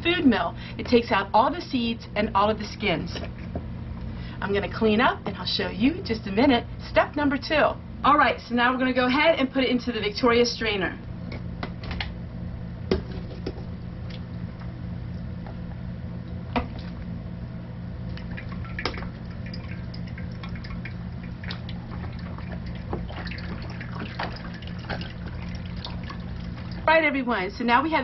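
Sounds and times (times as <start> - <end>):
steady low hum: 0.0 - 28.0
wet squishing and dripping: 16.2 - 17.1, 18.0 - 26.8.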